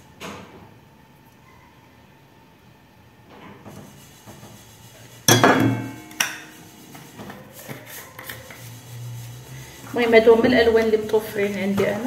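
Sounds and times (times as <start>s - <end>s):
metal bowl clanking: 5.3s - 6.6s.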